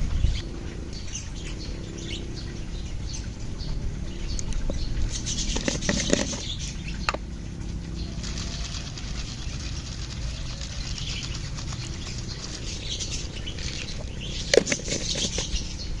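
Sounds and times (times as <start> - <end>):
faint birds chirping: 0.0 - 16.0
plastic jar clicks and rustling: 5.5 - 6.5, 13.6 - 15.6.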